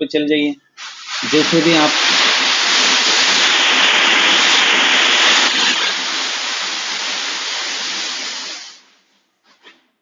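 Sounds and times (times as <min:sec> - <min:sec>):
loud rushing hiss: 0:00.8 - 0:09.0.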